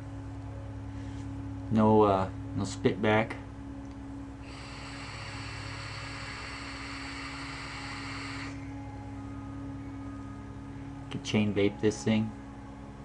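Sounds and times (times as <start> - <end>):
vape hissing: 4.4 - 8.6.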